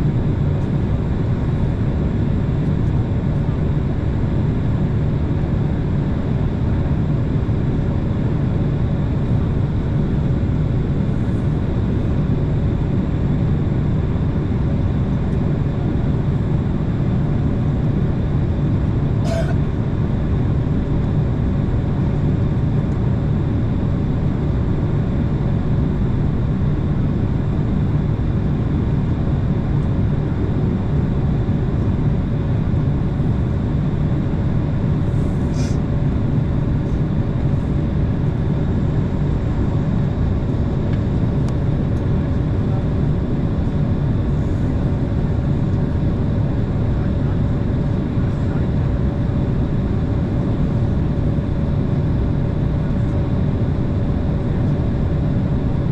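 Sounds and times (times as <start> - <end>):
jet engine rumble: 0.0 - 55.9
faint steady hum: 18.7 - 20.3.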